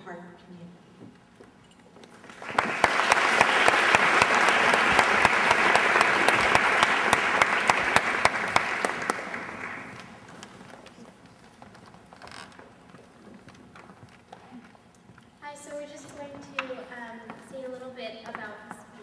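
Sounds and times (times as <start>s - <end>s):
close sharp claps: 2.2s - 10.2s
audience applause: 2.2s - 10.4s.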